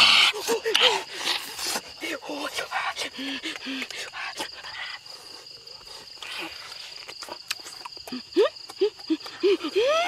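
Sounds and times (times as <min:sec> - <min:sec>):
insects chirring: 0:00.0 - 0:10.0
eating clicks: 0:06.1 - 0:09.8.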